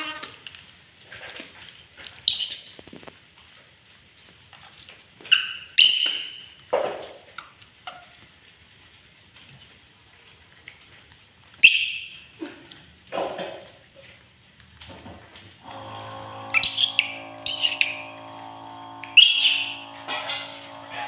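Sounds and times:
monkey screaming: 16.4s - 18.2s, 19.0s - 20.0s.

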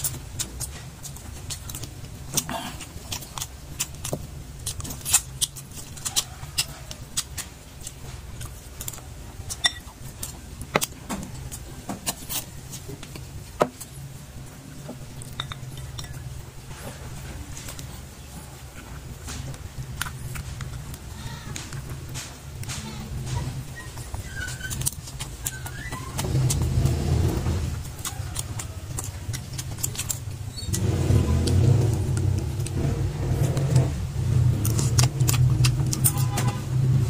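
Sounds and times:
chewing: 0.0s - 37.0s
metal spoon clinking on glass bowl: 15.3s - 16.2s.

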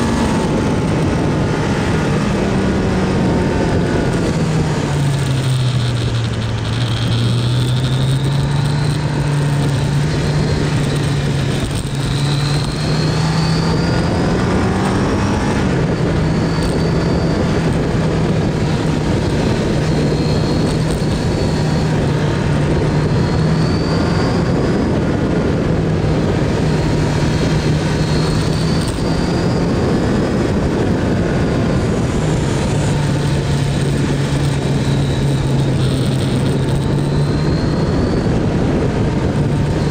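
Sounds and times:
motorcycle engine running: 0.0s - 39.9s
road noise: 0.0s - 39.9s
wind noise: 0.0s - 39.9s.

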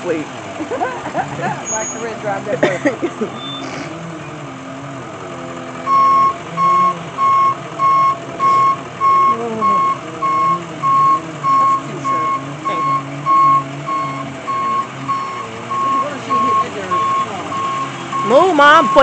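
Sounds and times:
reversing alarm beeping: 5.8s - 19.0s.

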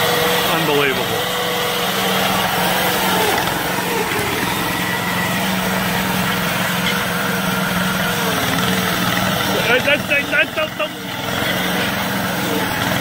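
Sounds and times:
tracked vehicle engine droning: 0.0s - 13.0s.

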